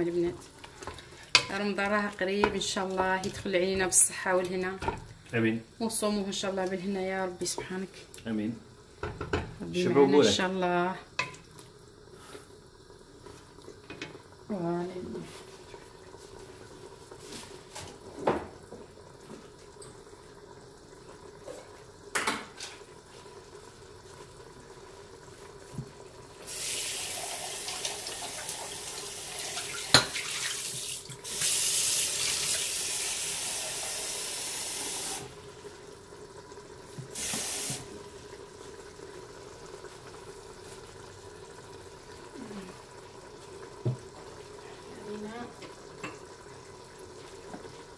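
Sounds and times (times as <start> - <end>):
tap running into a sink: 36.9 - 37.9.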